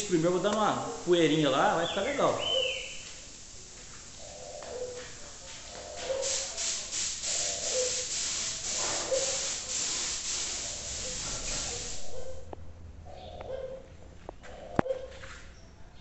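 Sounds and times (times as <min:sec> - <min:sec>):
paint spray gun hissing: 0:00.0 - 0:04.1, 0:05.6 - 0:12.2.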